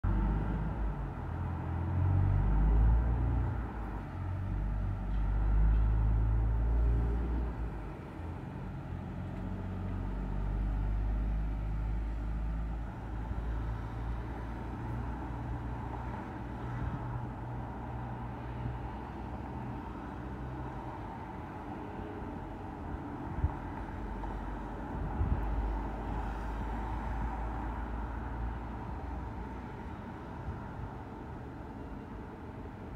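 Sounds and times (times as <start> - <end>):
wind buffeting microphone: 24.9 - 25.8.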